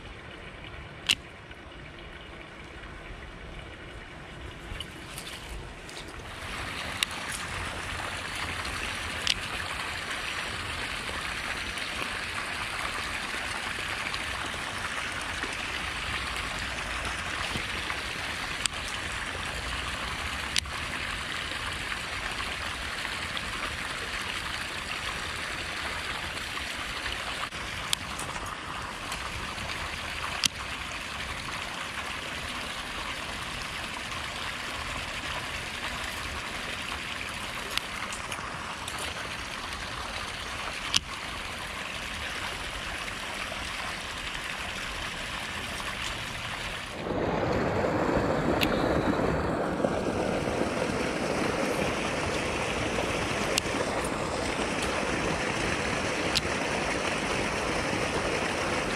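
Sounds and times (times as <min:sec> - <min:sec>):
water pouring into canal: 0:00.0 - 0:58.9.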